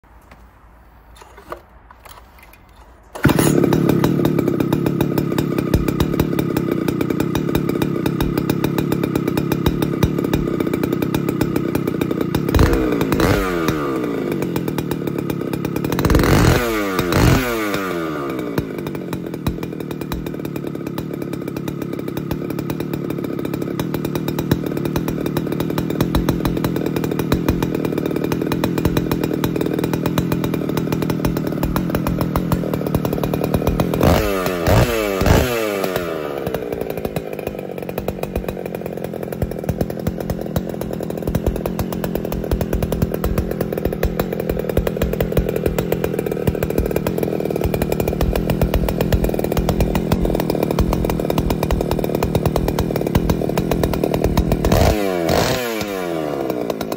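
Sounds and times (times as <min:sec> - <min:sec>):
two-stroke engine running: 0:03.1 - 0:56.9
engine revving: 0:09.3 - 0:20.3, 0:27.2 - 0:56.9.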